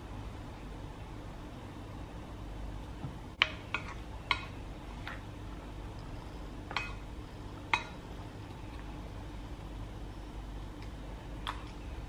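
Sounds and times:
spoon clinking against ceramic bowl: 0:06.7 - 0:07.0, 0:07.7 - 0:08.0.

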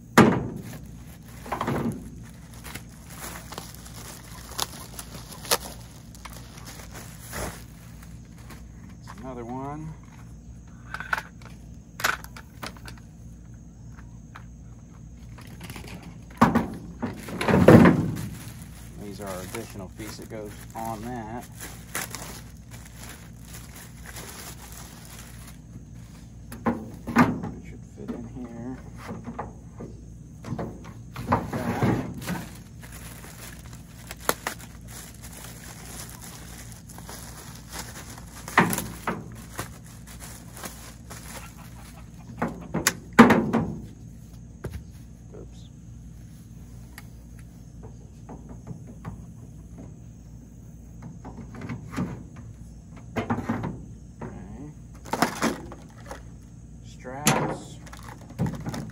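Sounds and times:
steady low hum: 0:00.0 - 0:58.9
plastic wrapping rustling: 0:00.4 - 0:09.1, 0:16.8 - 0:27.1, 0:31.2 - 0:42.2, 0:55.0 - 0:56.4, 0:57.8 - 0:58.9.

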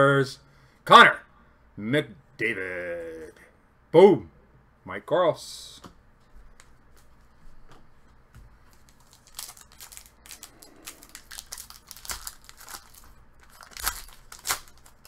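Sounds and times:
foil wrapper crinkling and tearing: 0:08.8 - 0:15.0.

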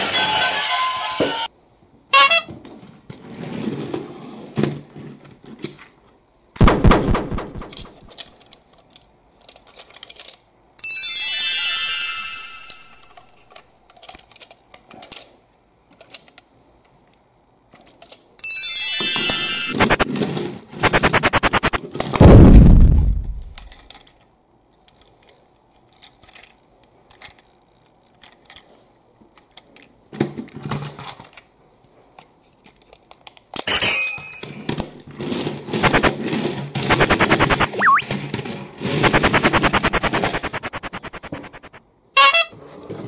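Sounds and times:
plastic toy clicks and knocks: 0:07.1 - 0:10.5, 0:12.7 - 0:15.3, 0:15.9 - 0:16.5, 0:17.8 - 0:18.3, 0:23.5 - 0:28.6, 0:39.0 - 0:41.8
rapid even ticking: 0:20.8 - 0:21.8, 0:36.9 - 0:38.0, 0:39.0 - 0:41.8
loud falling low boom: 0:22.2 - 0:23.7.

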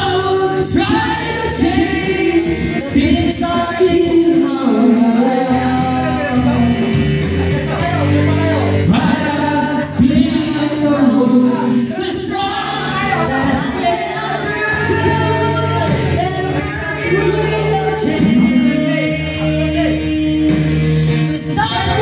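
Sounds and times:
woman singing into microphone: 0:00.0 - 0:06.9, 0:08.8 - 0:22.0
recorded backing music: 0:00.0 - 0:22.0.

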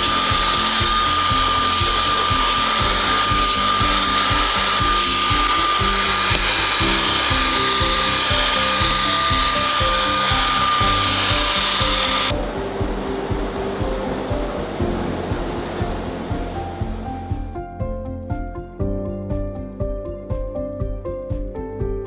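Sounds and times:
handheld vacuum whining: 0:00.0 - 0:12.4
background music with a beat: 0:00.0 - 0:22.0.

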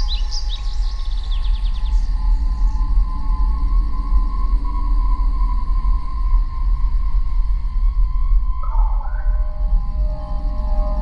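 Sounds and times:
songbird chirping: 0:00.0 - 0:02.8, 0:08.6 - 0:11.0.

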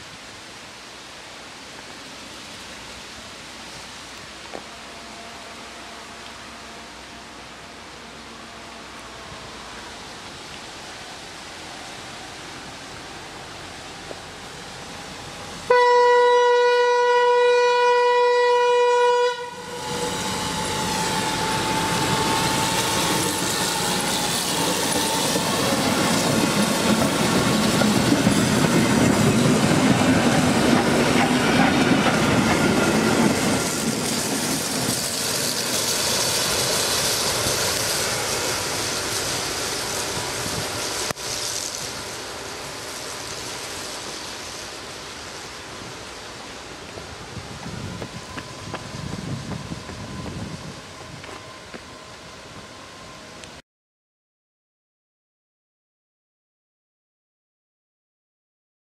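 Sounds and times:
locomotive engine and wheels on rails: 0:00.0 - 0:53.6
locomotive horn blast: 0:04.7 - 0:09.6, 0:15.7 - 0:25.6.

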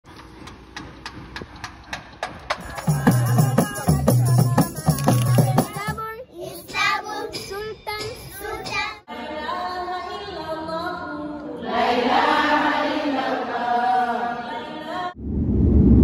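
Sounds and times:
group of voices singing: 0:02.6 - 0:05.8, 0:08.3 - 0:15.2.

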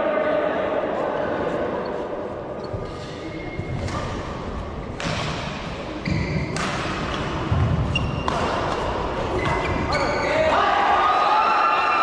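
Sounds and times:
shoes squeaking on court: 0:01.8 - 0:04.7, 0:05.8 - 0:10.4
shuttlecock hits and thuds: 0:04.9 - 0:05.8, 0:06.4 - 0:09.6.

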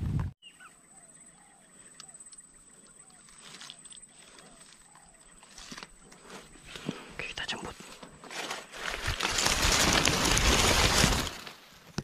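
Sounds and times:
loud rustling: 0:08.2 - 0:11.6.

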